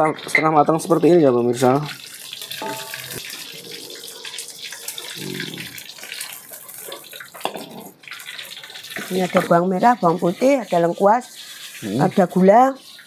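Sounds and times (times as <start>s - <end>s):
tofu sizzling in hot oil: 0.0s - 13.0s.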